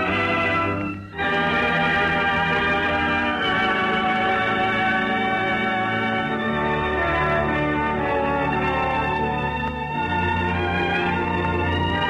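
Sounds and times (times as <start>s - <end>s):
organ playing sustained chords: 0.0s - 12.0s.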